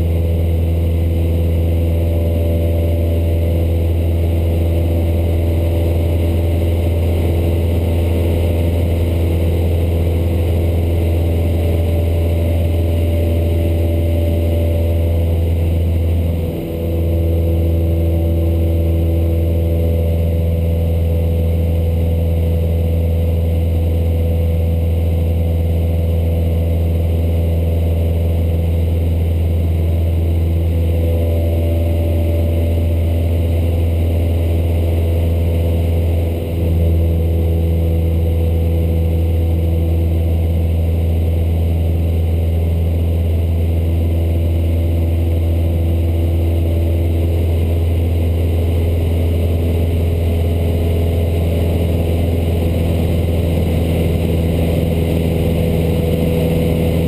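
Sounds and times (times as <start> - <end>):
airplane engine and propeller drone: 0.0 - 57.0.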